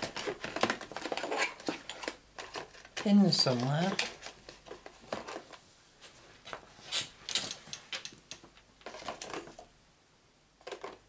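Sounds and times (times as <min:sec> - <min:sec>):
small hard objects rattling: 0:00.0 - 0:05.5.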